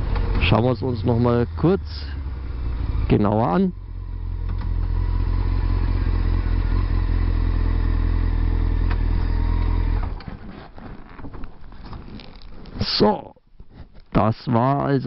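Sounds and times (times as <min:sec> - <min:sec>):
motorcycle engine running: 0:00.0 - 0:10.2
faint clatter and rustle: 0:10.0 - 0:12.9, 0:13.6 - 0:14.2.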